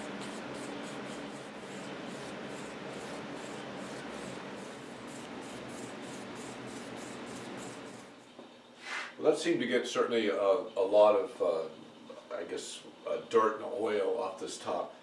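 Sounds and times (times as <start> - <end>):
rag rubbing wooden table: 0.0 - 8.1.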